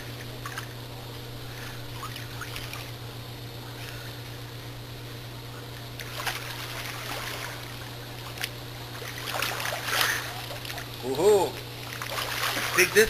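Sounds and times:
steady low hum: 0.0 - 13.0
pool water splashing and lapping: 1.5 - 3.1, 5.9 - 13.0.

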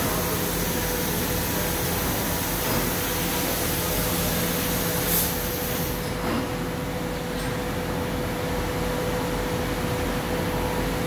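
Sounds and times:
industrial machinery humming: 0.0 - 11.0
short hiss of air: 2.6 - 6.2.

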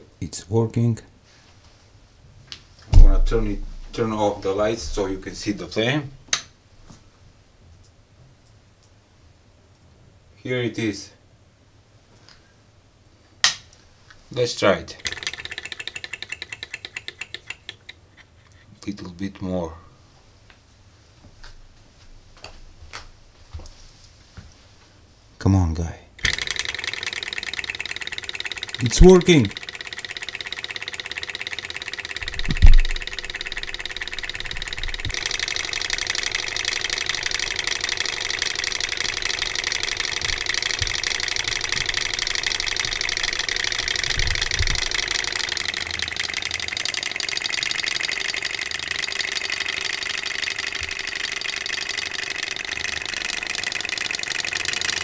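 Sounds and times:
loud low thump: 3.0 - 3.9
stirling engine mechanical rattle: 15.0 - 18.0, 26.2 - 55.0.

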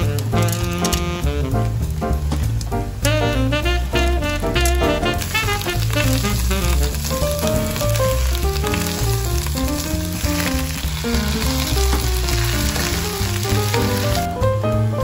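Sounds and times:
background music: 0.0 - 15.0
vegetables sizzling in a wok: 3.9 - 14.5
spatula stirring: 5.2 - 14.2.

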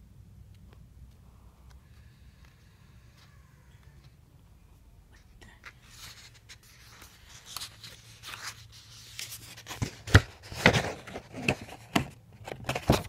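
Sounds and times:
paper rustling: 5.4 - 13.0.

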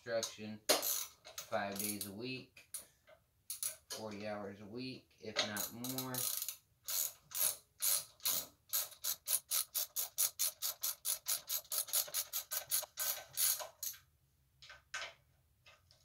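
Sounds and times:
ratchet wrench clicking: 0.7 - 2.1, 5.6 - 14.0.

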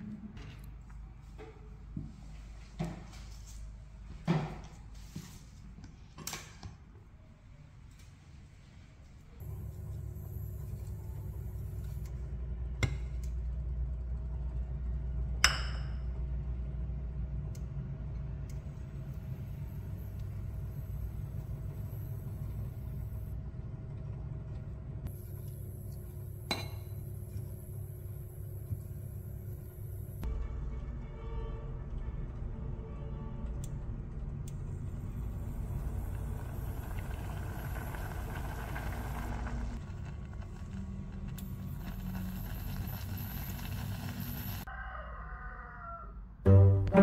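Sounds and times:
steady low hum: 8.7 - 31.3, 32.0 - 44.7.

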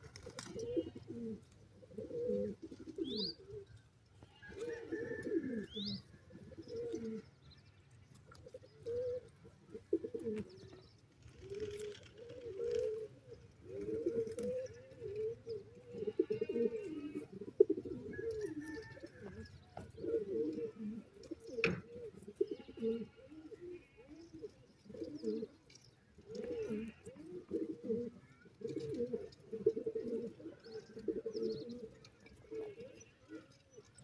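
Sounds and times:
pigeons cooing: 0.0 - 7.4, 8.1 - 34.0.

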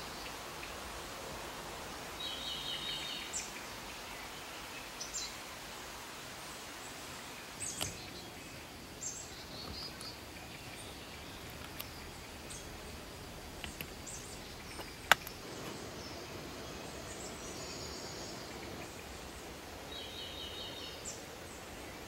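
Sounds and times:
small birds chirping: 0.0 - 22.0
steady background hiss: 0.0 - 22.0
sharp click: 14.7 - 15.4.

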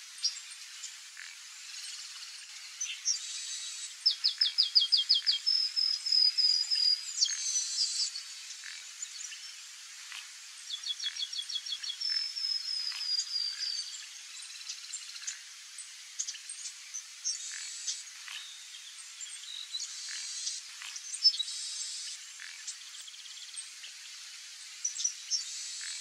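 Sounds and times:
steady background hiss: 0.0 - 26.0
blackbird singing: 2.8 - 8.2, 10.7 - 14.0, 18.4 - 21.6.

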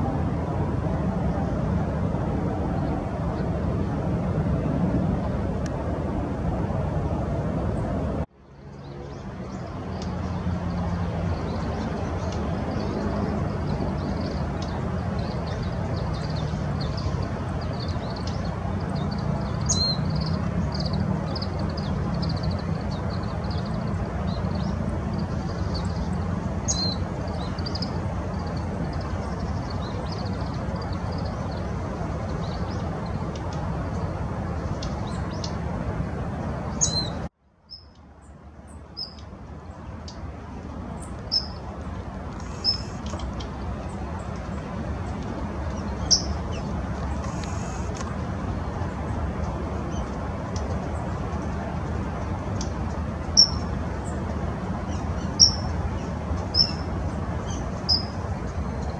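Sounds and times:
small birds high calls: 8.6 - 33.3, 36.7 - 40.2, 40.8 - 49.2, 50.8 - 58.9.

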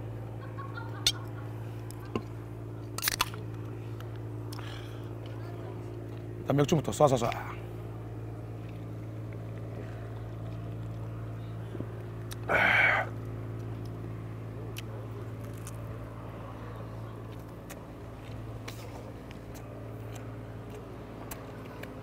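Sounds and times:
low mechanical hum: 0.0 - 22.0
man exhaling ahh: 12.4 - 13.1.

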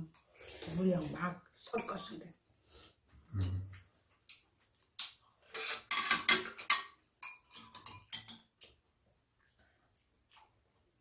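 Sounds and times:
utensils clinking on ceramic bowls: 1.7 - 2.2, 5.5 - 8.6.

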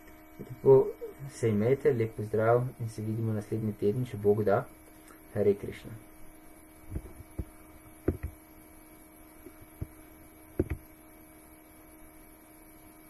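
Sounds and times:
faint electrical hum: 0.0 - 13.0
knocks and clicks handling computer: 6.9 - 8.4, 10.6 - 10.8.

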